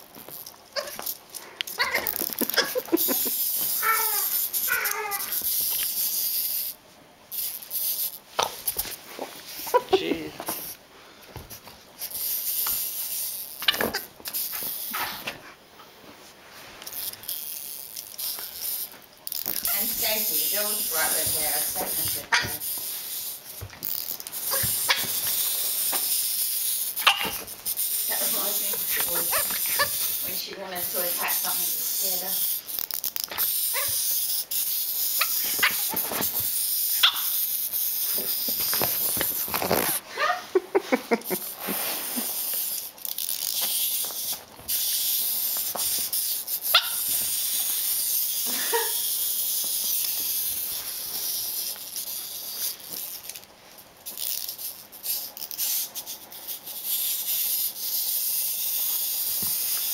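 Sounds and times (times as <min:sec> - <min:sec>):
wind-up toy clockwork whirring: 0:00.0 - 0:08.9, 0:12.0 - 0:15.2, 0:16.8 - 0:40.0, 0:41.2 - 0:59.9
puppy woofing: 0:00.8 - 0:01.0, 0:01.8 - 0:02.9, 0:03.7 - 0:05.4, 0:28.9 - 0:30.0, 0:33.7 - 0:34.0.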